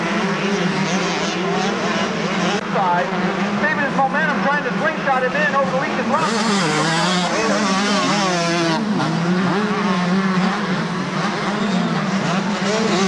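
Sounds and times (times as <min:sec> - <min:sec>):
motocross bike engines revving: 0:00.0 - 0:13.0.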